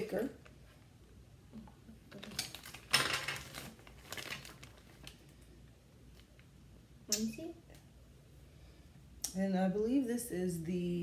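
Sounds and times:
plastic tools clattering: 0:02.2 - 0:04.8
packaging rustling: 0:02.2 - 0:05.4.

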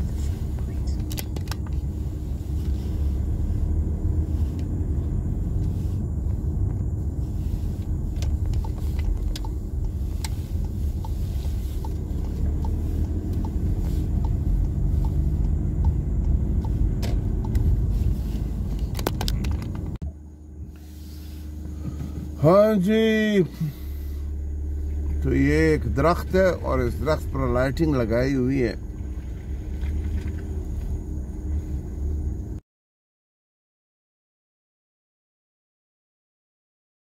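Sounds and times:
car rumbling on wet road: 0:00.0 - 0:20.0, 0:20.6 - 0:32.6
faint regular ticking: 0:07.8 - 0:17.9.

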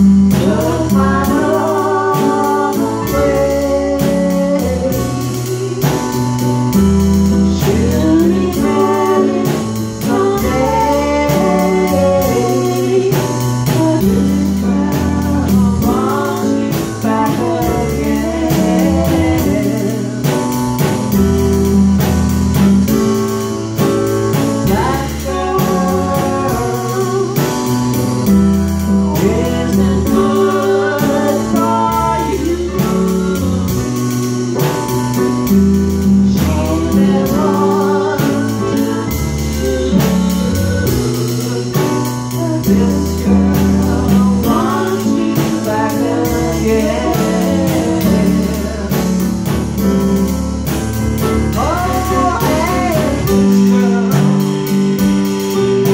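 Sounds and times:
person singing: 0:00.0 - 0:22.2, 0:23.8 - 0:50.3, 0:51.2 - 0:55.9
bass line: 0:00.0 - 0:55.9
drum kit beat: 0:00.0 - 0:55.9
electronic keyboards: 0:00.0 - 0:55.9.

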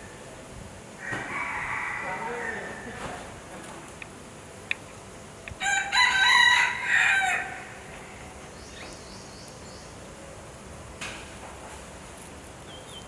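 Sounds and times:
fowl crowing: 0:01.0 - 0:03.0, 0:05.6 - 0:08.2.

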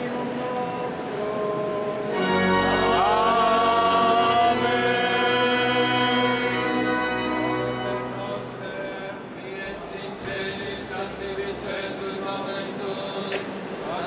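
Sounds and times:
group singing a chant hymn: 0:00.0 - 0:14.0.

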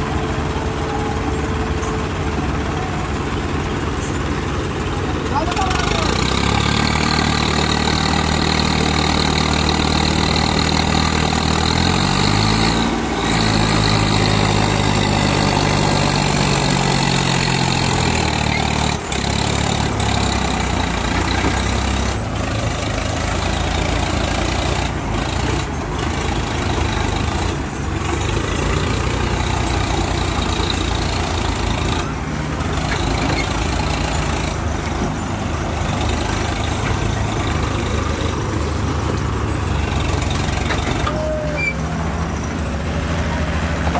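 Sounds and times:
diesel engines running: 0:00.0 - 0:43.9
engine revving up: 0:05.5 - 0:41.2.

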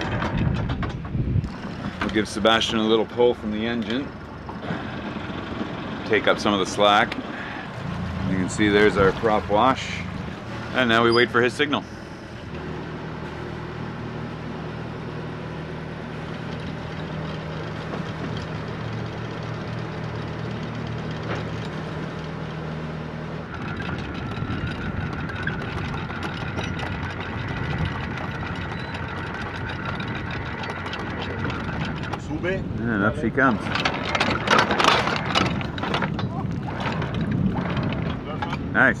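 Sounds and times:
anchor windlass whining: 0:00.0 - 0:39.0
boat engine humming: 0:00.0 - 0:39.0
anchor chain rattling: 0:23.4 - 0:38.8.

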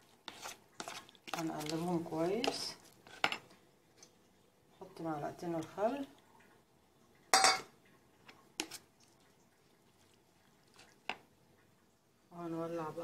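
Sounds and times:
metal spoon clinking on bowl: 0:07.4 - 0:07.7.

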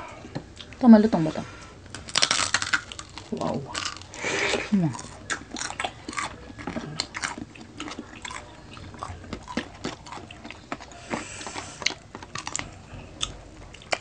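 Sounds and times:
crunchy chewing: 0:01.8 - 0:14.0.

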